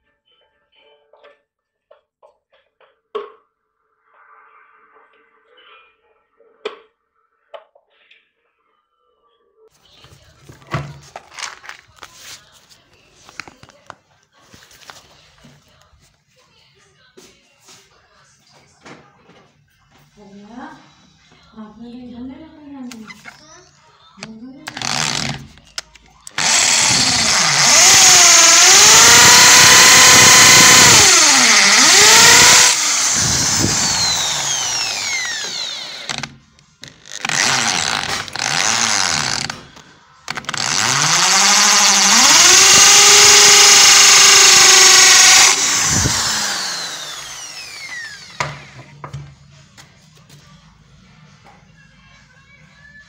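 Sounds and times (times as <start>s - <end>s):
electric drill boring into plaster: 24.7s - 25.6s, 26.3s - 48.8s.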